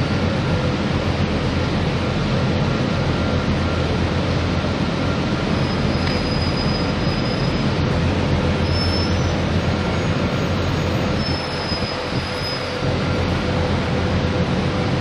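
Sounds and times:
dryer machine rumbling: 0:00.0 - 0:15.0
high metallic squeal: 0:05.5 - 0:07.8, 0:08.6 - 0:12.9.

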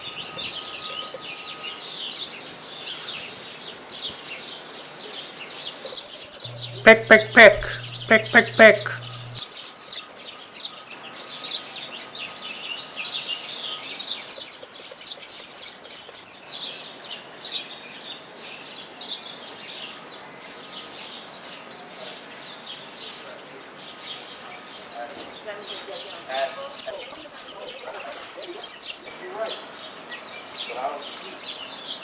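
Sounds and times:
small birds chirping: 0:06.5 - 0:09.4.

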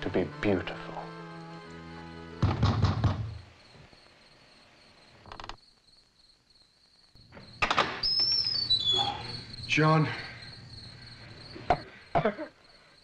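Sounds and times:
crickets chirping: 0:00.0 - 0:13.0
door thudding open: 0:02.4 - 0:03.4.

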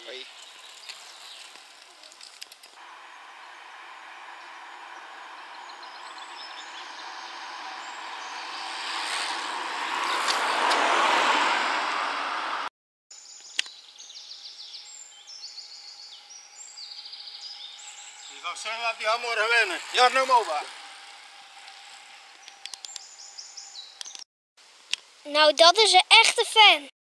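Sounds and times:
birds chirping: 0:00.0 - 0:10.8, 0:13.1 - 0:24.2
roadside ambience: 0:00.0 - 0:26.9
car passing by: 0:02.8 - 0:12.7, 0:16.8 - 0:23.9
sharp click: 0:13.4 - 0:13.8.

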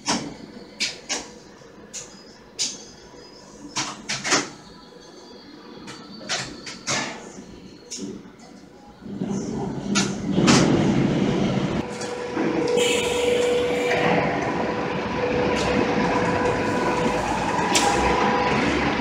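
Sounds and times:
conveyor machinery running: 0:00.0 - 0:19.0
steady machine whine: 0:11.0 - 0:19.0.

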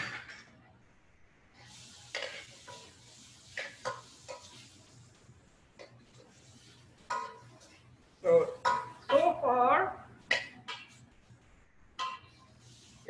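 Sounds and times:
metal spoon clanking in pan: 0:07.1 - 0:07.4, 0:12.0 - 0:12.4.

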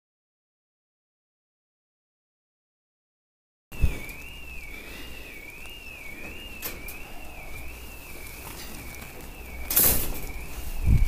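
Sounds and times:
intruder alarm warbling tone: 0:03.7 - 0:11.0
rustle of leaves and branches: 0:03.8 - 0:11.0.

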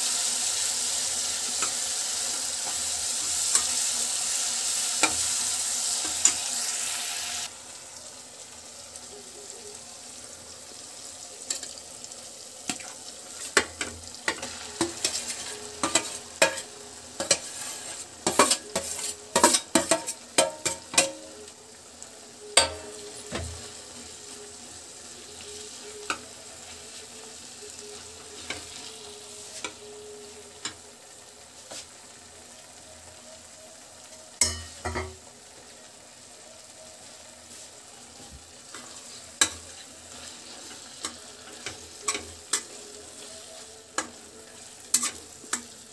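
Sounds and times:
faint frying sizzle: 0:00.0 - 0:45.9
spatula scraping a pan: 0:12.8 - 0:21.2, 0:37.5 - 0:45.9.

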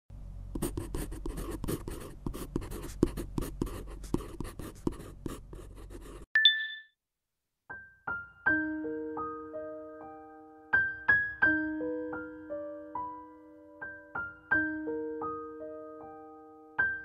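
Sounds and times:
pen scratching on paper: 0:00.6 - 0:06.3
bright chime: 0:06.4 - 0:06.9
piano notes: 0:07.7 - 0:17.0.

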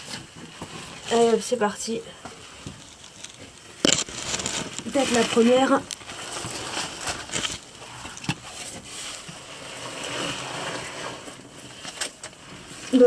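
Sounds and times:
body rubbing on mud and rock: 0:02.4 - 0:11.8.

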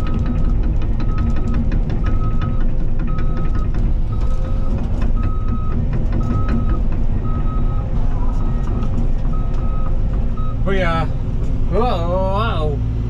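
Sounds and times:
clicks and clanks: 0:00.0 - 0:07.5
warning alarm beeping: 0:00.0 - 0:11.1
excavator diesel engine rumbling: 0:00.0 - 0:13.0.

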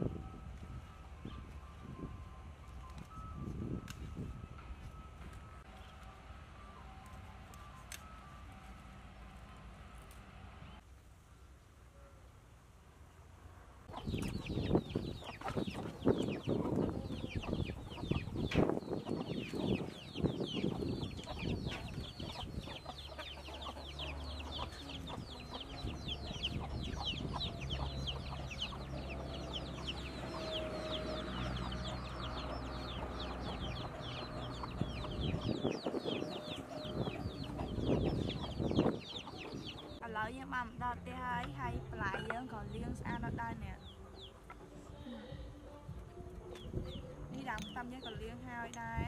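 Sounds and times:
chickens clucking: 0:13.9 - 0:40.0
chicks peeping: 0:13.9 - 0:40.0, 0:45.9 - 0:48.2.

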